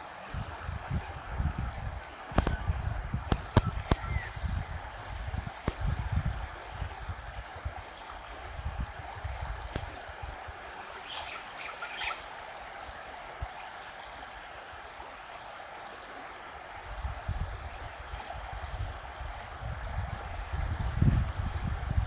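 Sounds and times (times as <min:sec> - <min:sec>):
wind rumbling on microphone: 0:00.0 - 0:15.1, 0:16.5 - 0:22.0
river rushing: 0:00.0 - 0:22.0
bird calls: 0:03.5 - 0:04.3, 0:11.0 - 0:12.3, 0:13.2 - 0:14.5.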